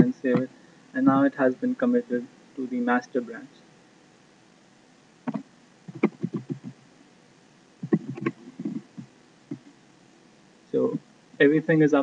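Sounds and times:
keyboard typing: 5.3s - 6.8s, 7.8s - 9.7s.

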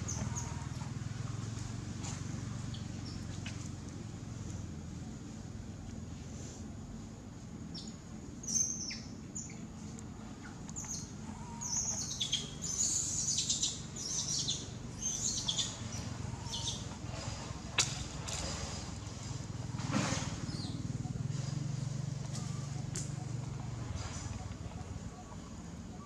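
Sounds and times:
high-pitched chirping calls: 10.8s - 16.9s.

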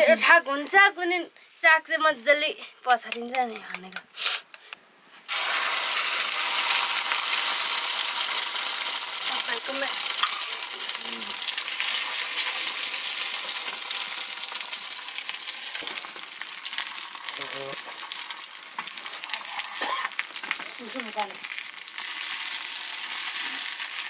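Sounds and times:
food sizzling in hot oil: 5.3s - 24.0s.

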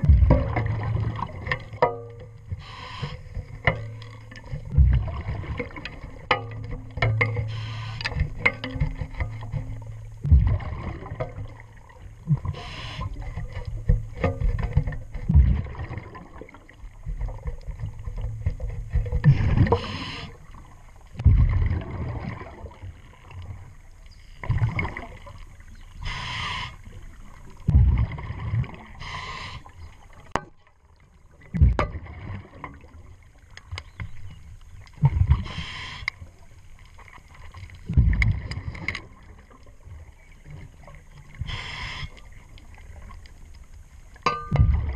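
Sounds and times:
exhaled bubbles rushing: 0.0s - 1.8s, 3.2s - 6.3s, 9.7s - 14.2s, 15.2s - 18.2s, 19.2s - 23.6s, 24.4s - 25.4s, 27.6s - 29.2s, 37.8s - 40.2s, 44.5s - 44.9s
diver breathing through a regulator: 2.5s - 3.5s, 7.5s - 8.3s, 12.4s - 13.4s, 19.2s - 20.4s, 26.0s - 27.0s, 28.9s - 29.8s, 35.3s - 36.2s, 41.4s - 42.3s.

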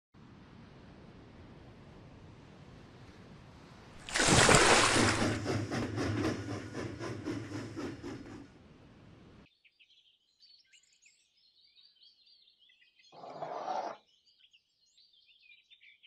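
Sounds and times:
steam train chuffing: 5.0s - 9.4s
faint birds chirping: 8.8s - 16.0s.

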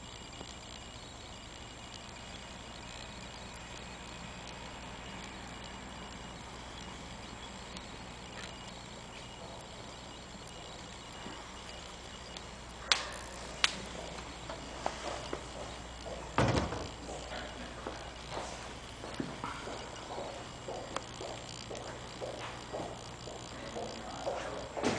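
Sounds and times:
low room hum: 0.0s - 24.9s
sharp clicks: 0.0s - 24.9s.

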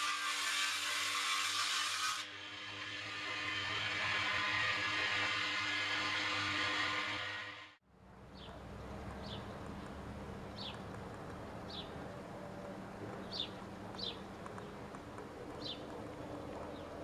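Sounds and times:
outdoor background noise: 0.0s - 17.0s
bird chirping: 9.2s - 11.0s, 11.6s - 17.0s.

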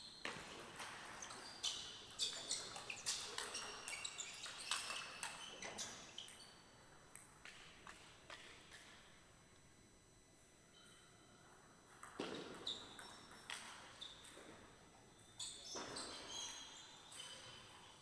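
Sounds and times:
shoes squeaking on floor: 0.1s - 6.5s, 15.4s - 17.6s.

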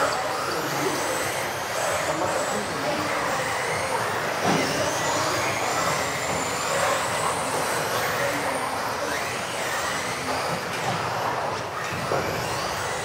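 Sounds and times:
rc car motor whine: 0.0s - 13.0s.

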